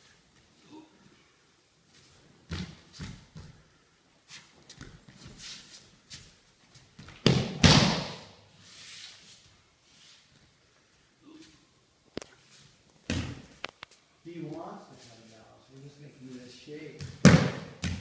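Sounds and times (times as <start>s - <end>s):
bare feet stamping on mats: 17.0s - 18.0s.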